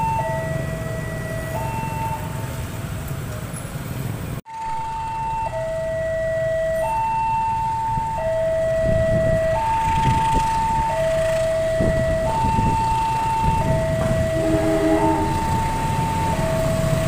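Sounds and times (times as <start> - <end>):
level-crossing warning alarm: 0.0 - 2.6, 4.5 - 17.0
locomotive rumble: 0.0 - 17.0
lower quieter tone: 13.7 - 16.5.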